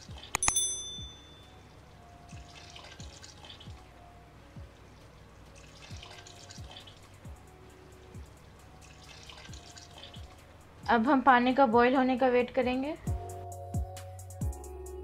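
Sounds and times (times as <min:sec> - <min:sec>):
background music with low beat: 0:00.0 - 0:15.0
clicks: 0:00.4 - 0:01.0
short ringing chime: 0:00.4 - 0:01.6
water splashing into a pot: 0:02.4 - 0:03.6, 0:05.5 - 0:07.0.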